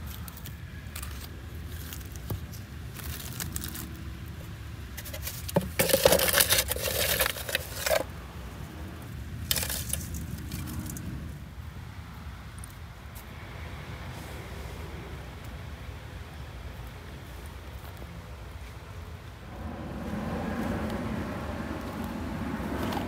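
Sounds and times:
low steady rumble: 19.1 - 23.0.

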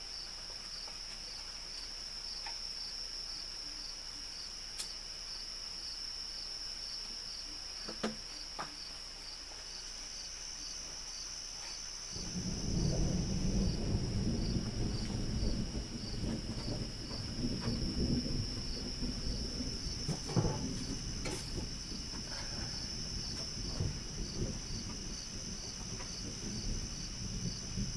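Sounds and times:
crickets chirping: 0.0 - 27.9
distant thunder rumbling: 12.1 - 27.9.

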